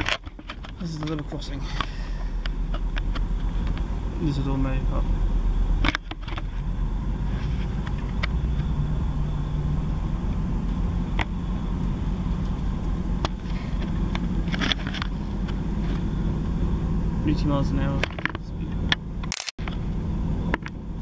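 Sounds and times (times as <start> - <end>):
sharp clicks and knocks: 0.0 - 3.9, 5.8 - 6.5, 18.0 - 19.8
train engine and wheels rumbling: 0.0 - 21.0.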